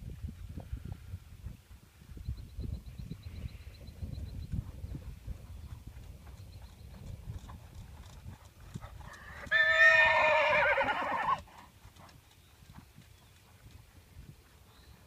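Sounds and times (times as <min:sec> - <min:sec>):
horse hooves trotting on sand: 0:00.0 - 0:15.0
horse whinnying: 0:09.2 - 0:11.5.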